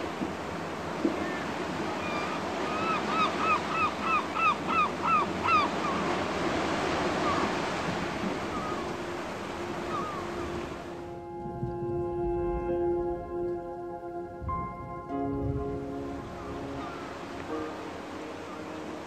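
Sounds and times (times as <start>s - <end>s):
surf washing up a beach: 0.0s - 19.0s
bird calling: 1.1s - 11.0s, 16.0s - 19.0s.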